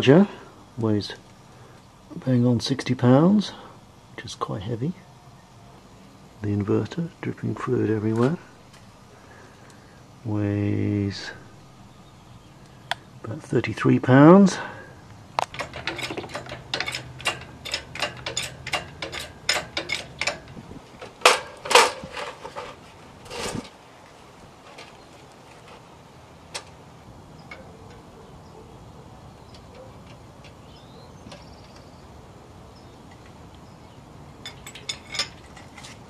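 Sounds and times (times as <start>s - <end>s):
metallic chain clicks: 15.4s - 20.6s, 34.4s - 36.0s
sharp metal knocks: 15.4s - 22.7s
short scrape: 22.0s - 23.7s.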